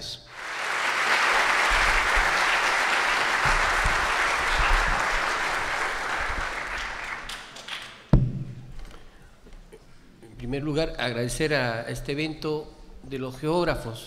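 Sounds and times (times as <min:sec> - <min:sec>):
audience applauding: 0:00.3 - 0:08.1.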